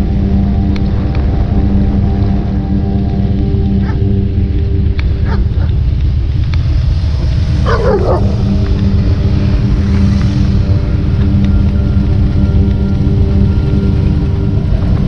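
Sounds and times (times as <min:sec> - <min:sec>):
steady drone: 0:00.0 - 0:15.0
dog barking: 0:03.8 - 0:04.0, 0:05.2 - 0:05.7, 0:07.6 - 0:08.4.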